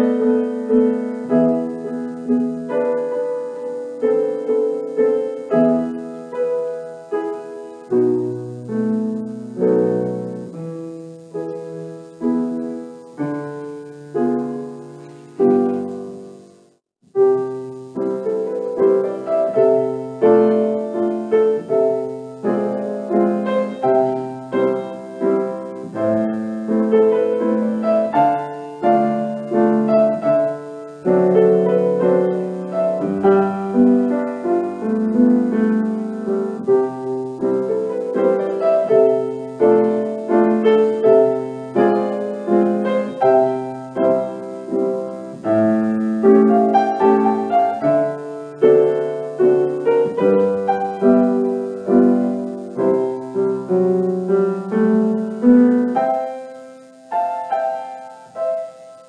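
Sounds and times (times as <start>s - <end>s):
slow gentle piano piece: 0.0s - 59.0s.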